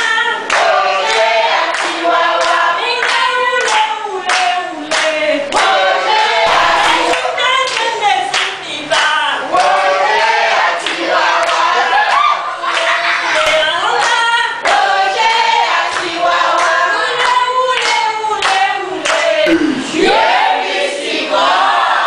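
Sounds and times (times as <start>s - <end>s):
group singing: 0.0s - 22.0s
hands clapping on a beat: 0.5s - 5.8s, 6.5s - 9.8s, 10.8s - 11.7s, 12.7s - 19.9s.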